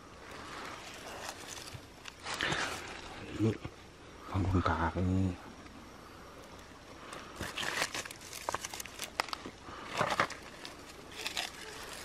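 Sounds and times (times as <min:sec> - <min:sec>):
leaf litter crackling: 0:00.2 - 0:03.5, 0:07.1 - 0:12.0
woven sack being handled: 0:10.0 - 0:12.0.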